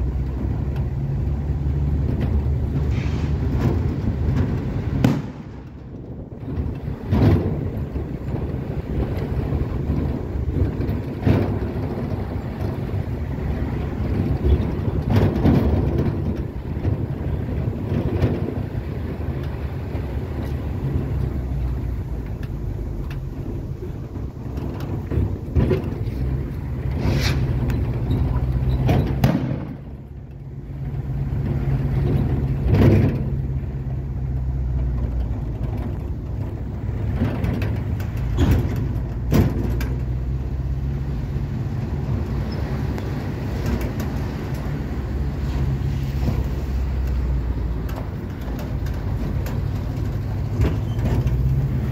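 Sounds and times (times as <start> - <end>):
road noise: 0.0 - 51.9
vehicle engine hum: 0.0 - 51.9
knocks from road bumps: 1.9 - 30.2, 30.8 - 40.9.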